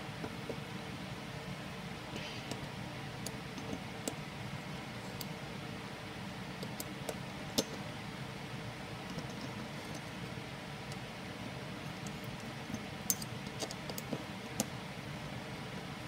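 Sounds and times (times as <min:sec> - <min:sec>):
steady background hiss: 0:00.0 - 0:16.0
metallic clicks of allen key: 0:13.1 - 0:14.1.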